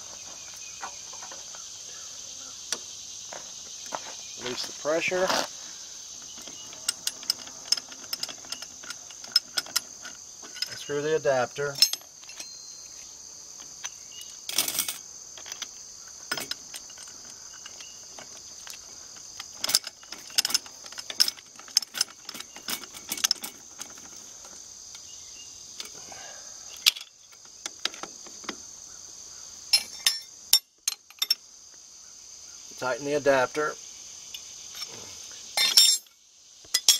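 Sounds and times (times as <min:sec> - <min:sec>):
insects chirping: 0:00.0 - 0:36.9
metal tools clinking on fittings: 0:06.2 - 0:13.0, 0:13.6 - 0:25.0, 0:26.8 - 0:28.6, 0:29.7 - 0:31.4, 0:35.6 - 0:36.9.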